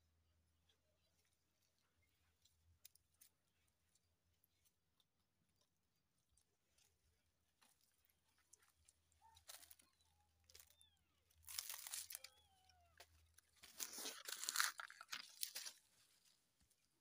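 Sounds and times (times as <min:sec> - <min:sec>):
leaves crunching underfoot: 0:11.4 - 0:12.4, 0:13.6 - 0:16.3.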